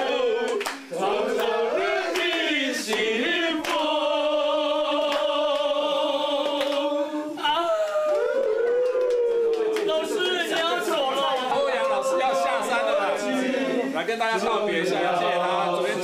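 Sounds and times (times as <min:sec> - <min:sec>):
hand claps: 0:00.0 - 0:04.0, 0:05.0 - 0:12.0
group singing unaccompanied: 0:00.0 - 0:07.6, 0:09.8 - 0:16.0.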